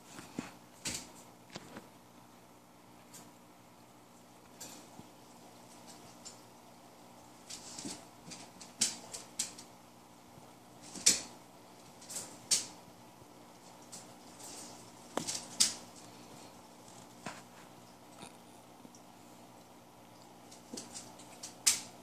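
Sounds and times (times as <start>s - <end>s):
puppy claws clicking on floor: 0.2s - 1.8s, 5.7s - 6.5s, 7.4s - 9.7s, 10.8s - 12.8s, 13.6s - 16.2s, 20.1s - 22.0s
wire cage rattling: 7.4s - 9.7s, 10.8s - 12.8s, 13.6s - 16.0s.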